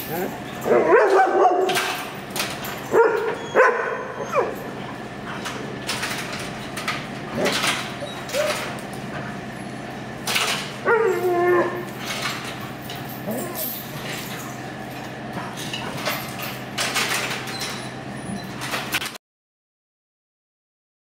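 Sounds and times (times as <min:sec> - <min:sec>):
dogs barking and yipping: 0:00.0 - 0:18.8.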